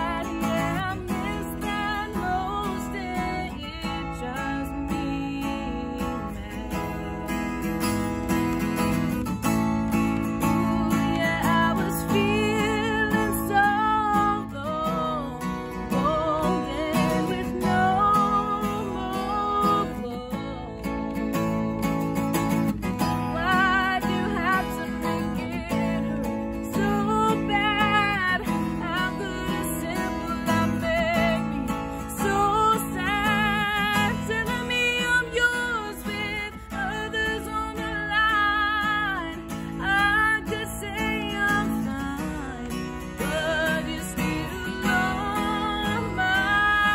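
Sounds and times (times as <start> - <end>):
strummed acoustic guitar: 0.0 - 46.9
woman singing a pop ballad: 0.0 - 46.9.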